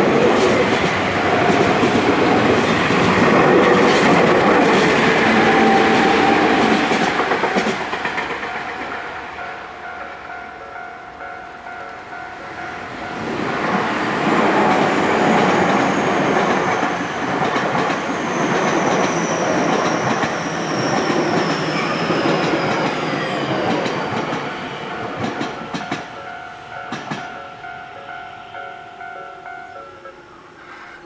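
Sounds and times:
train wheels rumbling and clattering: 0.0 - 10.0, 13.0 - 27.4
level crossing warning bell: 8.4 - 17.0, 24.3 - 30.8.

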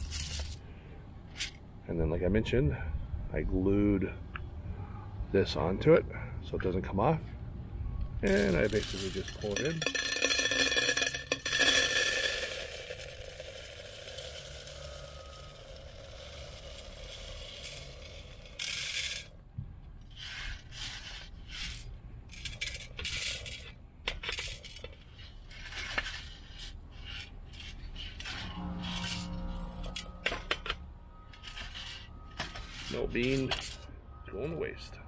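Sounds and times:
coffee beans rattling into canister: 8.3 - 17.9.

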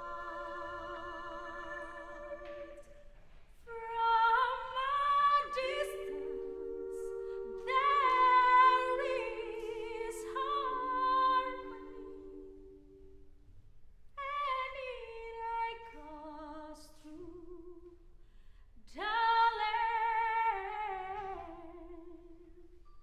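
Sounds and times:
choir singing a cappella: 0.0 - 3.1, 3.7 - 13.4.

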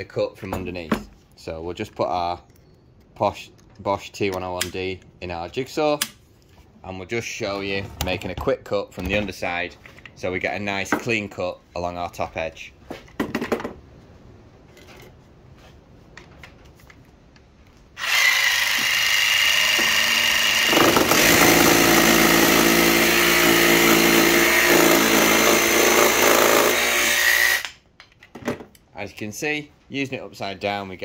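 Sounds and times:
jigsaw cutting wood: 18.0 - 27.7.

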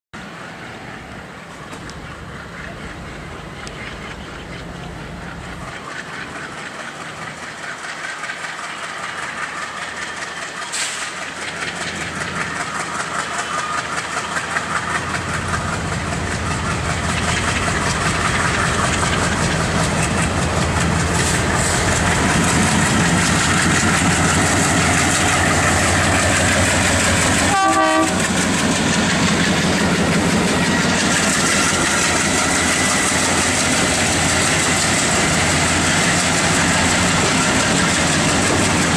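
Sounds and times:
diesel locomotive engine: 0.2 - 38.9
train wheels on rails: 0.2 - 38.9
train horn toot: 27.4 - 28.3.

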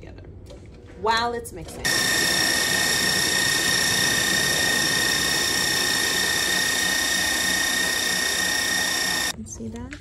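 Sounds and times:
stand mixer whining: 1.9 - 9.3.

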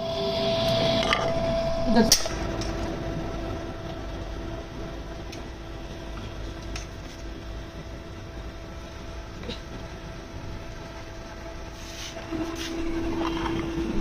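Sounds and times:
background hiss and hum: 0.0 - 14.0.

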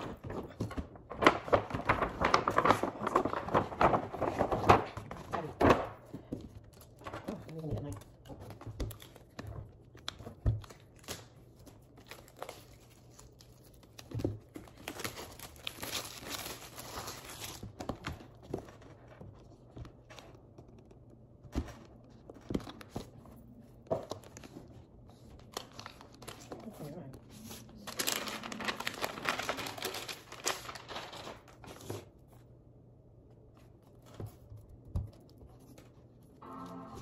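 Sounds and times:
plastic wrap crinkling: 0.0 - 6.0, 6.6 - 18.8, 22.4 - 32.4.

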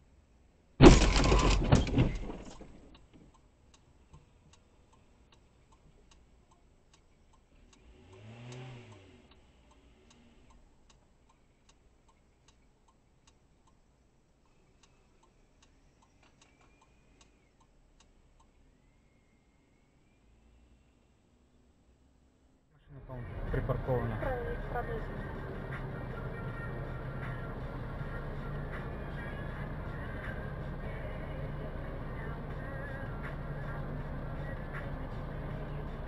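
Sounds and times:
car collision crunch: 0.8 - 2.9
faint regular ticking: 2.9 - 19.0
car engine revving: 7.5 - 10.7, 22.9 - 36.0.

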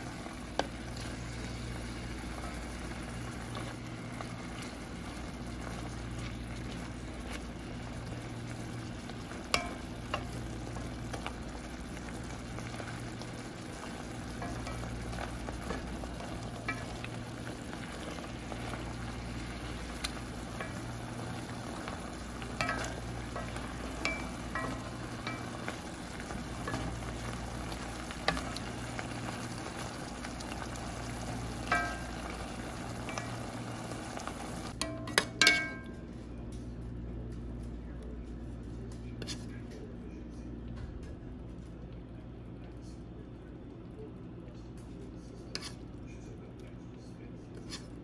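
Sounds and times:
meat sizzling and bubbling: 0.0 - 35.9
wooden spatula knocking pot: 22.4 - 28.9.

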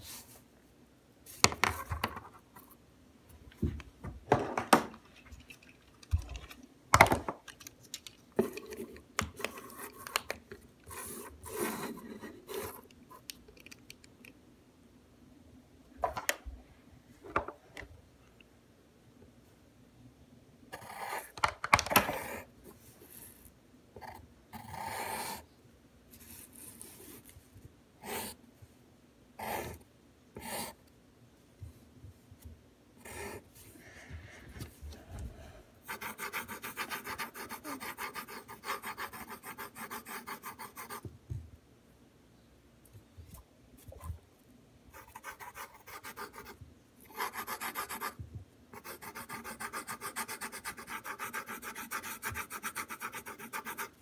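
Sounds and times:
pencil scratching on paper: 10.9 - 12.8, 35.8 - 41.0, 44.9 - 54.0.

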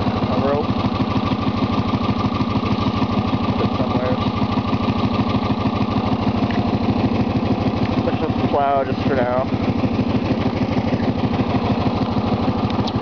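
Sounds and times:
lawn tractor engine running: 0.0 - 13.0.

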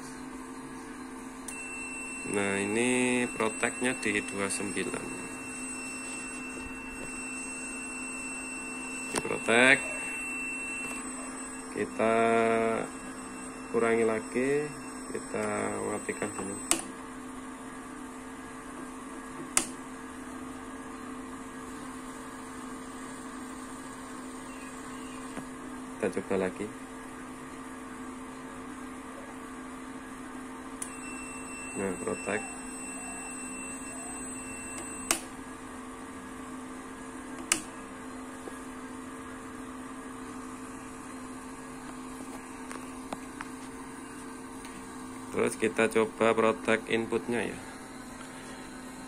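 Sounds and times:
faint high whine: 0.0 - 17.0, 19.6 - 27.4, 28.3 - 49.0
steady electrical hum: 0.0 - 49.0
power switch click: 16.7 - 16.9, 19.5 - 19.8, 37.4 - 37.7.

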